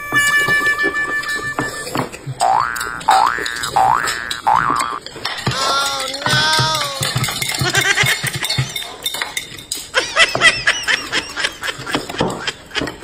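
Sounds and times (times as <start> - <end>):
falling comic tone: 0.0 - 8.2
chopsticks clinking on bowls: 1.2 - 13.0
high-pitched laughs: 5.5 - 8.7, 9.9 - 13.0.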